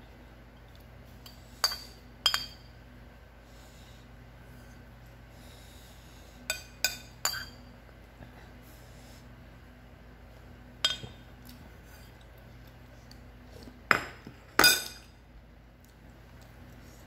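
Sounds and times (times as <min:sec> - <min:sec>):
metal spoon clinking on ceramic bowl: 0:06.5 - 0:07.6.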